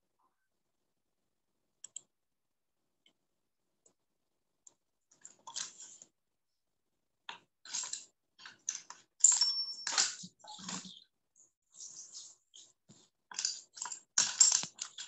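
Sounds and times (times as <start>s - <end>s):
short clicking and rustling: 13.3s - 15.0s.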